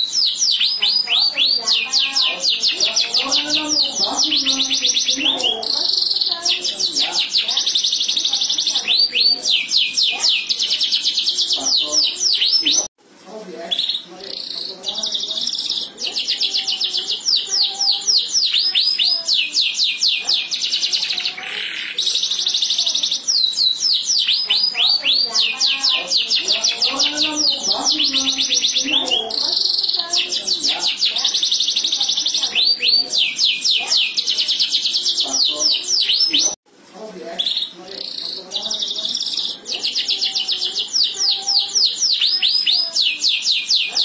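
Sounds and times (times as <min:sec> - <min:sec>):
canary singing: 0:00.0 - 0:44.0.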